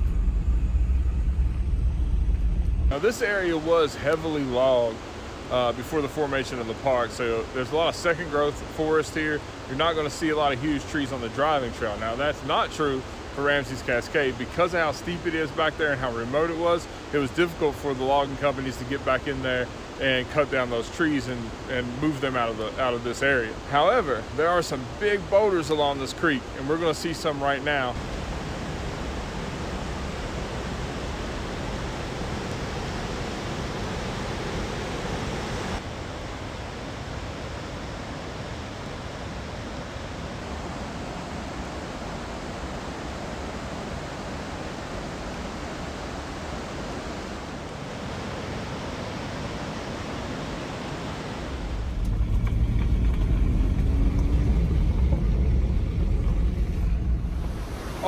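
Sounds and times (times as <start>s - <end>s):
creek rushing over boulders: 2.9s - 58.0s
car driving heard from inside: 51.8s - 57.8s.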